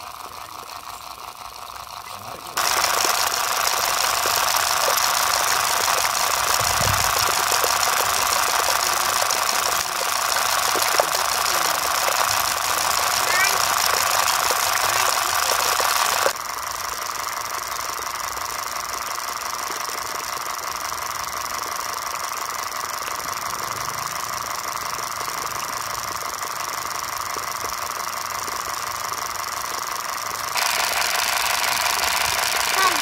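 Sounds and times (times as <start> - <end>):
water pump rattling: 0.0 - 33.0
water hissing: 2.0 - 16.4.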